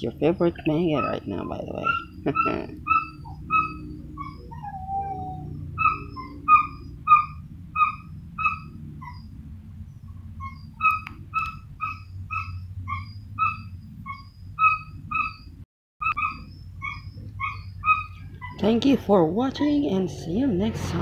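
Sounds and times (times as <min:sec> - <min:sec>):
steady low hum: 0:00.0 - 0:21.0
animal high calls: 0:00.4 - 0:09.4, 0:10.3 - 0:18.7
falling whine: 0:18.2 - 0:21.0.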